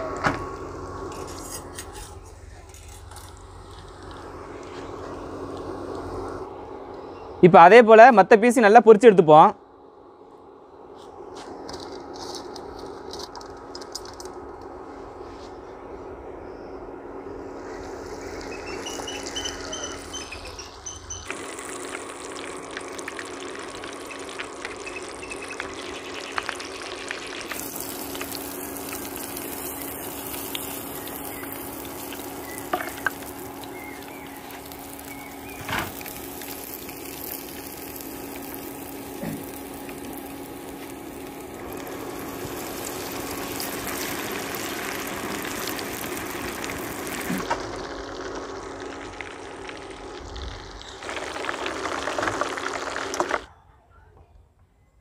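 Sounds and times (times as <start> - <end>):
chicken deep-frying in oil: 17.7 - 53.5.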